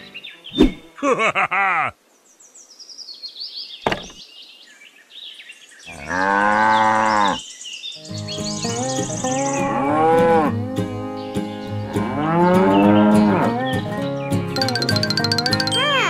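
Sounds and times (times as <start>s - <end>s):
cow mooing: 5.9s - 7.4s, 11.9s - 13.6s
high twinkling notes: 14.6s - 16.0s.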